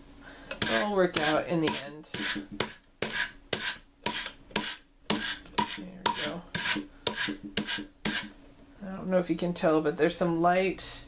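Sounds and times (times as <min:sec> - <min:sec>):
drum carder scraping fiber: 0:00.6 - 0:08.4.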